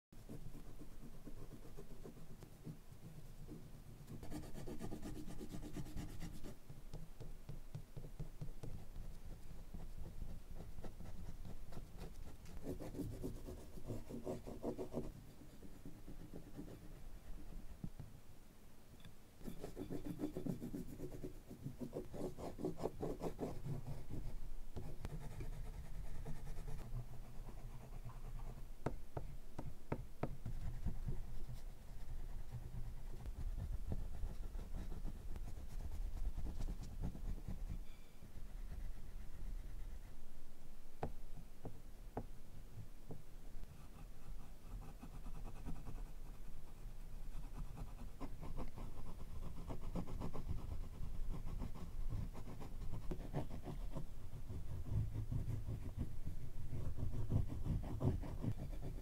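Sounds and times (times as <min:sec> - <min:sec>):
oil pastel scratching on paper: 0:00.2 - 0:06.6, 0:08.0 - 0:17.8, 0:19.4 - 0:29.0, 0:30.4 - 0:40.2, 0:43.6 - 0:59.0.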